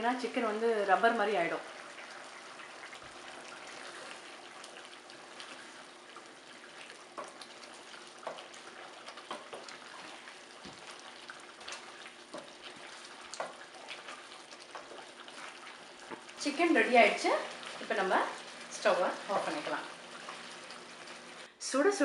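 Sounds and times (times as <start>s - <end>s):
gravy simmering and bubbling: 0.0s - 21.5s
wooden spatula scraping: 6.5s - 20.5s.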